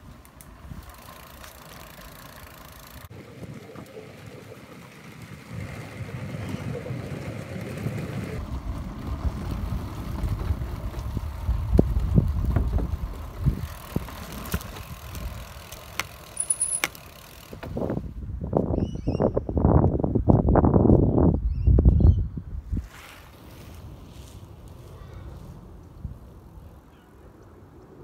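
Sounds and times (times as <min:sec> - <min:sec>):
bicycle tyres rumbling over planks: 0:00.6 - 0:18.1.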